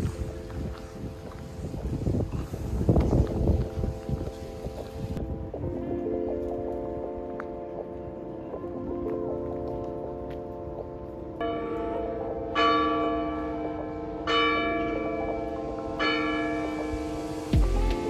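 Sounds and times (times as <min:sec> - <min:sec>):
sustained chords: 0:14.9 - 0:18.0.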